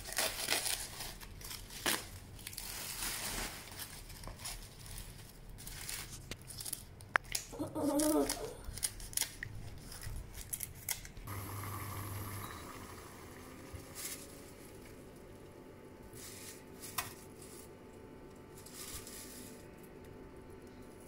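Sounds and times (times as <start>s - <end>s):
dry leaves rustling: 0.0s - 6.9s, 13.6s - 15.2s, 16.1s - 17.8s, 18.4s - 20.0s
water simmering in pot: 11.3s - 13.9s.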